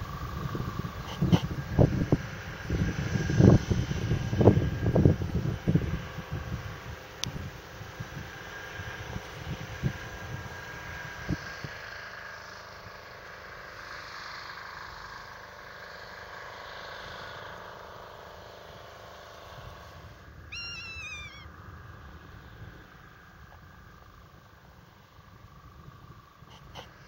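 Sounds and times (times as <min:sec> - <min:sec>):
outdoor background noise: 0:00.0 - 0:27.0
high falling animal call: 0:20.5 - 0:21.6.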